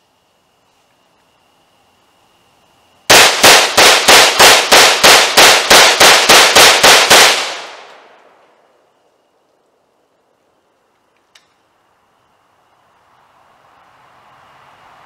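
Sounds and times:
rifle shots echoing: 3.1 - 8.4.

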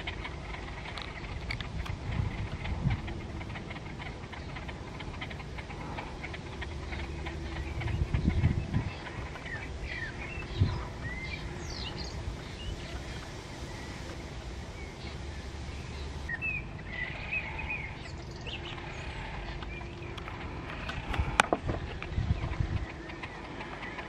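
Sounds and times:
low outdoor rumble: 0.0 - 24.0
small birds chirping: 0.0 - 24.0.

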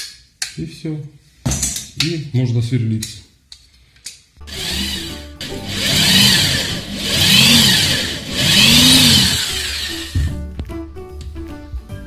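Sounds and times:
electric drill motor revving: 4.5 - 10.3.

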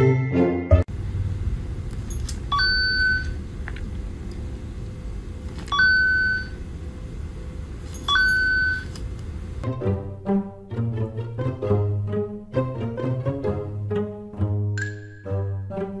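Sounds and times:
low room rumble: 0.8 - 14.6
short electronic beeps: 2.5 - 3.4, 5.7 - 6.6, 8.1 - 8.9.

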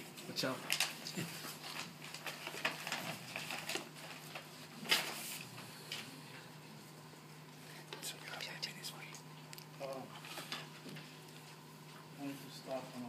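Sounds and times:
steady low hum: 0.0 - 13.0
papers rustling: 0.1 - 6.1.

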